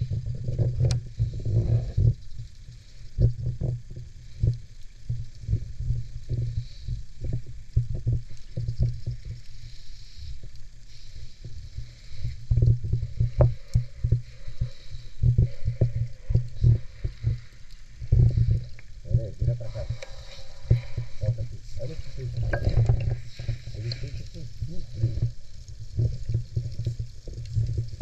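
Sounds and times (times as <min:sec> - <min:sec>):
underwater water rumble: 0:00.0 - 0:28.0.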